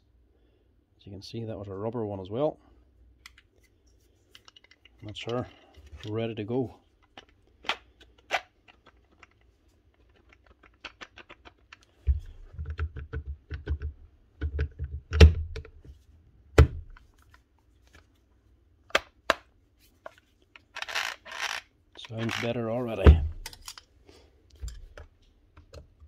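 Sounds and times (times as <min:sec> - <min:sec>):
tool parts clicking and knocking: 0:07.0 - 0:15.8, 0:18.9 - 0:23.9.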